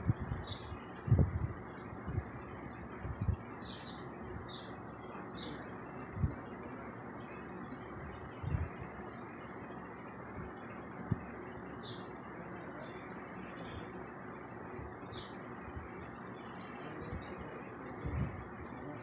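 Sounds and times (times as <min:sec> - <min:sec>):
steady hiss: 0:00.0 - 0:19.0
small bird chirping: 0:00.1 - 0:01.2, 0:03.6 - 0:09.9, 0:11.7 - 0:12.2, 0:14.9 - 0:18.2.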